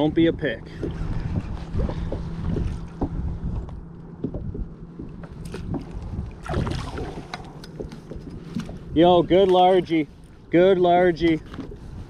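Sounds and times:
wind on microphone: 0.0s - 9.5s
water splashes: 5.0s - 9.9s.

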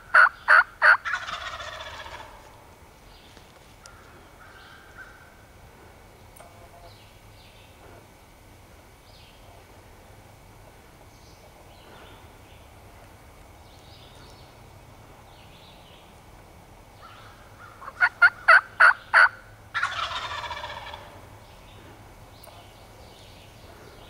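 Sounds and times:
turkey yelps: 0.1s - 2.4s, 17.0s - 21.2s
turkey gobbling: 0.1s - 2.5s, 17.0s - 21.2s.

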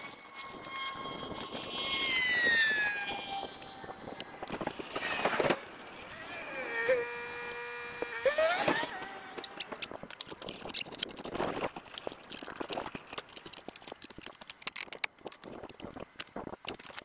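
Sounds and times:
plastic and metal parts clicking: 7.4s - 17.0s.

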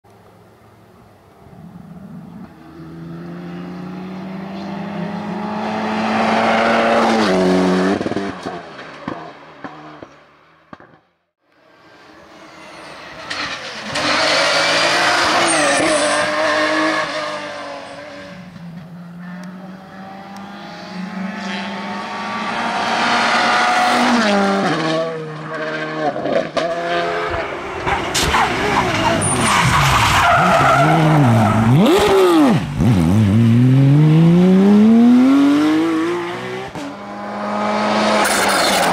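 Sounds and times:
rally cars passing: 0.4s - 38.9s
tyre squeal: 15.2s - 17.1s.

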